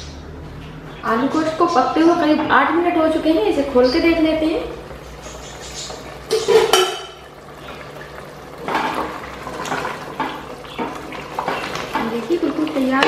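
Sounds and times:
spoon scraping and knocking pot: 5.8s - 7.2s
metal pot lid clinking: 6.2s - 7.2s.

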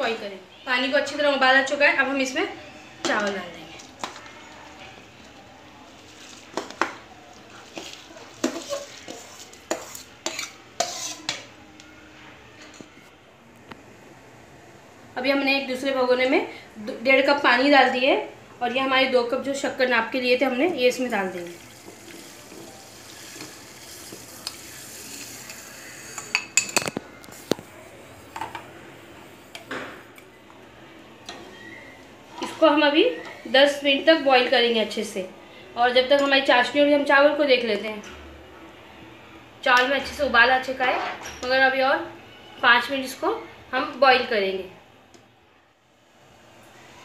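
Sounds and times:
metal spoon stirring in pot: 3.1s - 11.6s, 21.4s - 27.6s
metal spoon scraping steel bowl: 7.7s - 11.5s
sugar pouring into water: 21.2s - 26.4s.

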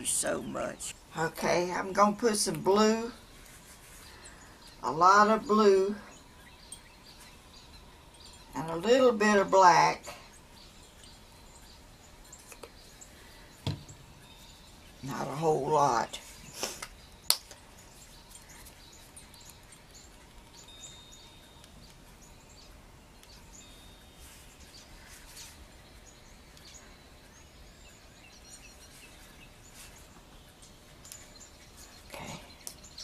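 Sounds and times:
faint songbird chirps: 0.0s - 33.0s.

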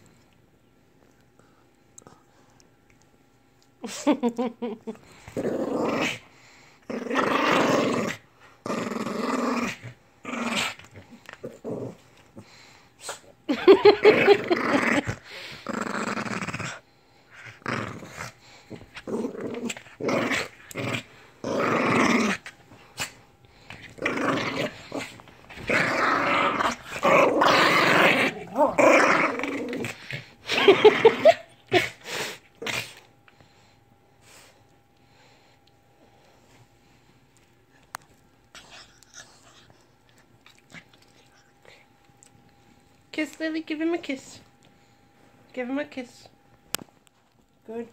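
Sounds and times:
dog growling: 5.3s - 6.2s, 6.9s - 12.5s, 13.7s - 16.8s, 17.4s - 33.0s.

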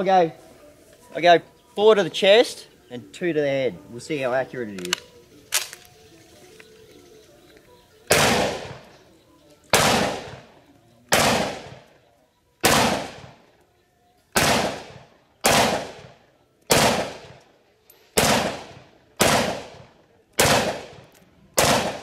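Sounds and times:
rifle shots: 8.1s - 8.9s, 9.7s - 10.5s, 11.1s - 11.9s, 12.6s - 13.4s, 14.4s - 17.4s, 18.2s - 22.0s.

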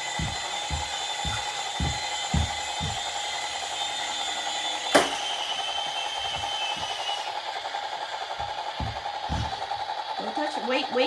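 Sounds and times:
low thumps: 0.0s - 3.2s, 8.4s - 9.8s
helicopter knocking on wooden floor: 0.0s - 3.6s, 6.2s - 7.3s, 8.3s - 10.0s
toy helicopter rotors whirring: 0.0s - 11.0s.

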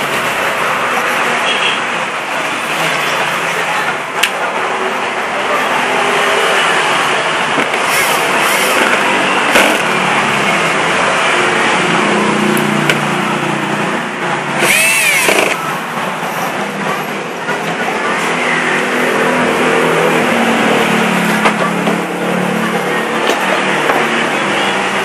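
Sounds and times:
traffic noise: 0.0s - 25.0s.

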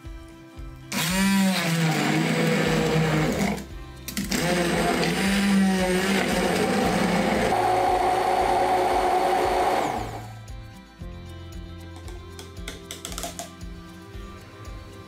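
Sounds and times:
immersion blender running: 0.9s - 10.4s.

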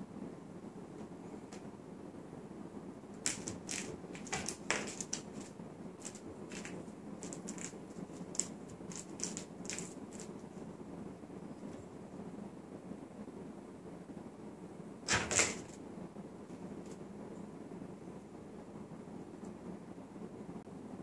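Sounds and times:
low background hum: 0.0s - 21.0s
kitten claws scrabbling on wood: 3.2s - 10.5s, 15.1s - 15.8s.

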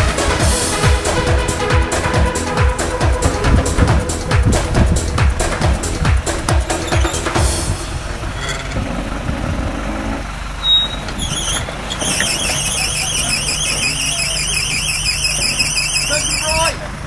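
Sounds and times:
off-road vehicle engine low revs: 0.0s - 17.0s
high wavering squeal: 6.3s - 9.3s, 10.6s - 16.7s.

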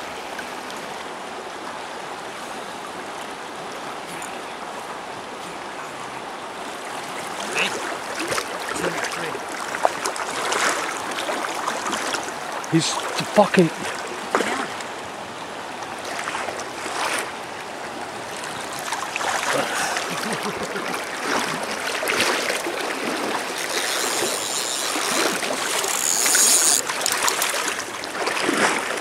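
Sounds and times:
river current over shallows: 0.0s - 29.0s
wading splashes: 6.6s - 14.9s, 16.0s - 29.0s.

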